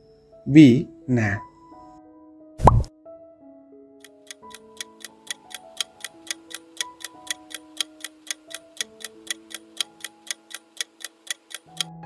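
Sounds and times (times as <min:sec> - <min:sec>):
soft background melody: 0:00.0 - 0:12.0
fast clock ticking: 0:04.0 - 0:12.0.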